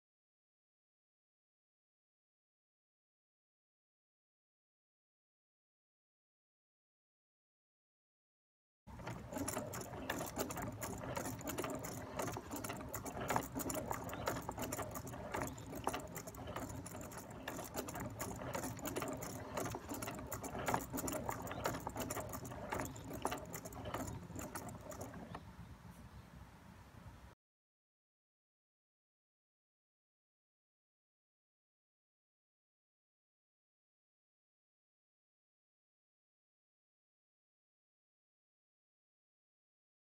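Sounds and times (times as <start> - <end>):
clattering clicks of wooden mechanism: 8.9 - 25.5.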